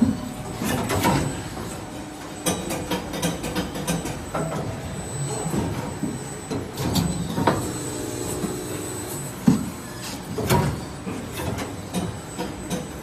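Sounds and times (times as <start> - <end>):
machine mechanical hum: 0.0 - 13.0.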